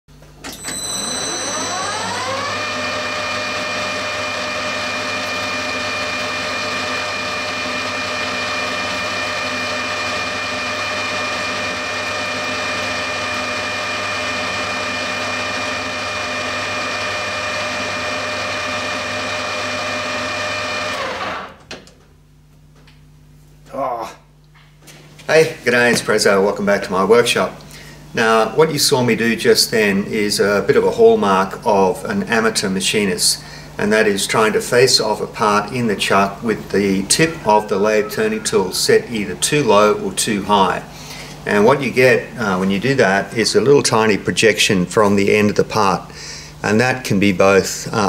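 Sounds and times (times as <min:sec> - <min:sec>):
lathe motor whining: 0:00.4 - 0:21.6, 0:34.6 - 0:42.8
lathe tool cutting metal: 0:01.5 - 0:21.4.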